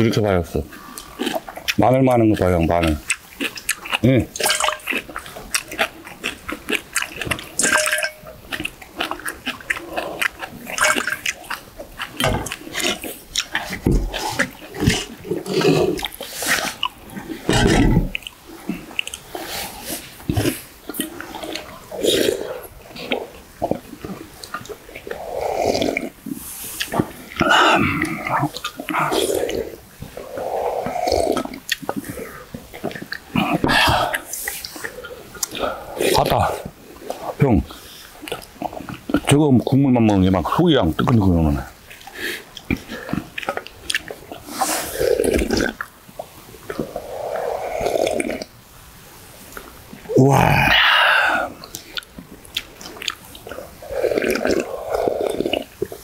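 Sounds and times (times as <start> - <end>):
people slurping and chewing: 0.0 - 56.0
utensils clinking against bowl: 4.4 - 5.0, 7.6 - 8.4, 10.8 - 11.2.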